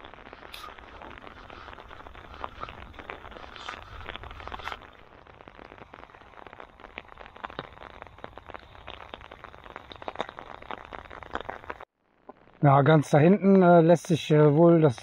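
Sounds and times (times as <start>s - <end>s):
heavy rain falling: 0.0s - 11.8s.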